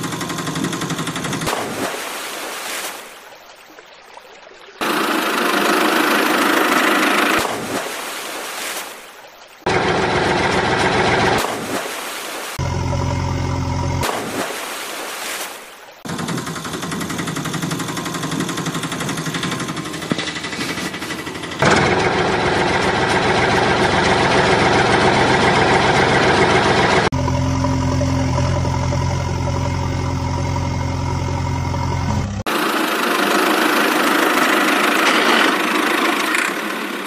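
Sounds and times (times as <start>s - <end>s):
heavy engine idling: 0.0s - 1.5s, 4.8s - 7.4s, 9.7s - 11.4s, 16.1s - 37.0s
engine running: 0.0s - 2.0s, 4.8s - 7.9s, 9.6s - 11.8s, 12.6s - 14.5s, 16.1s - 37.0s.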